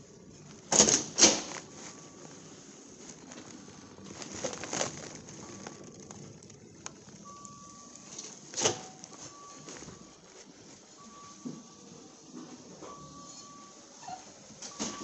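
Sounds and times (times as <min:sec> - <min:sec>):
rustling: 0:00.0 - 0:11.8.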